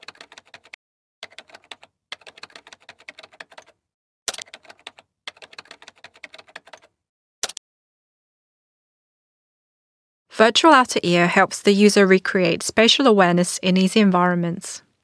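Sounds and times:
computer keyboard typing: 0:00.0 - 0:07.6.

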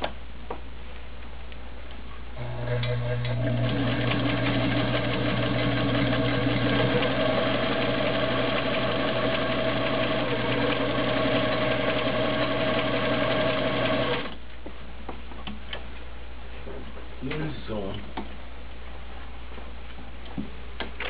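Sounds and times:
sewing machine running: 0:02.4 - 0:14.4.

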